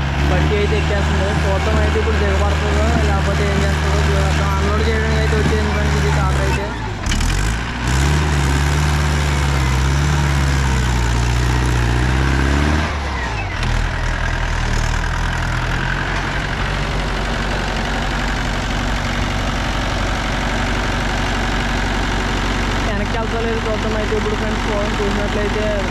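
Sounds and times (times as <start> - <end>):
tractor diesel engine: 0.0 - 25.9.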